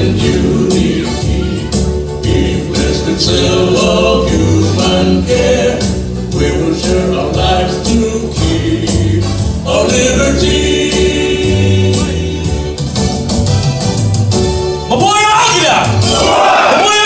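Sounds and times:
group singing a hymn: 0:00.0 - 0:12.7, 0:16.1 - 0:16.8
instrumental music with steady beat: 0:00.0 - 0:16.8.

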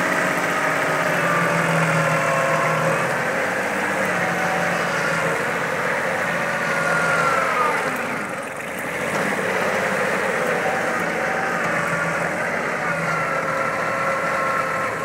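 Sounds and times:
rotary tiller in soil: 0:00.0 - 0:15.0
tractor diesel engine running: 0:00.0 - 0:15.0.

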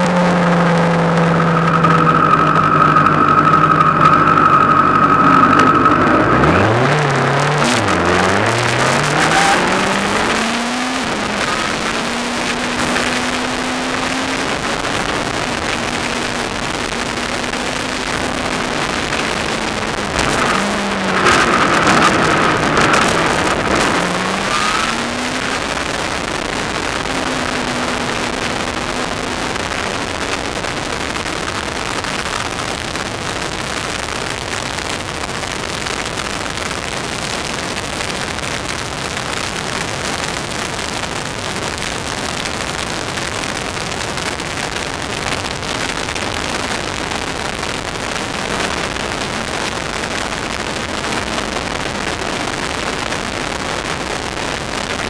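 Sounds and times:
faint car engine: 0:00.0 - 0:55.0
road noise: 0:00.0 - 0:55.0
wind rush: 0:05.6 - 0:32.7.

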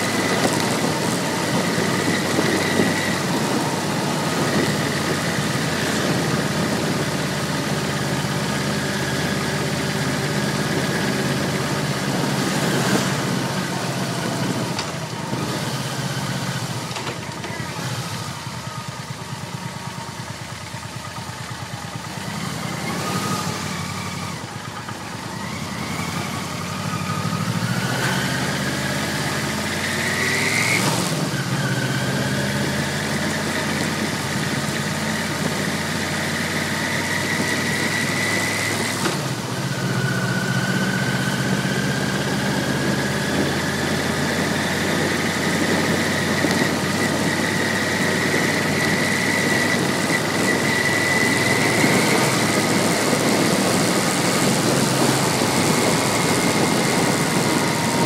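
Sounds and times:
motorcycle engine accelerating: 0:00.0 - 0:58.0.

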